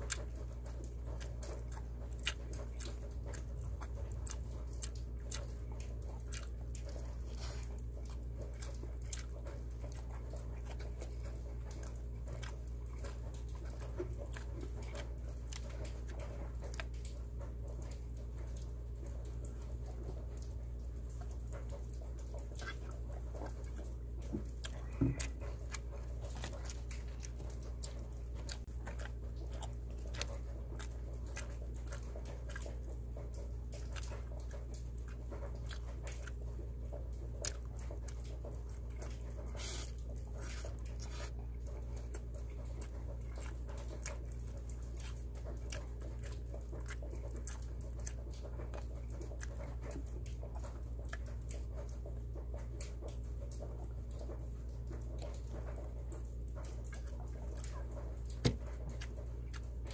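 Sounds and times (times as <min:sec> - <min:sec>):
person chewing food: 0:00.0 - 0:59.9
steady low hum: 0:00.0 - 0:59.9
wet mouth clicks and smacks: 0:00.0 - 0:59.9
person gulping a drink: 0:22.6 - 0:30.9.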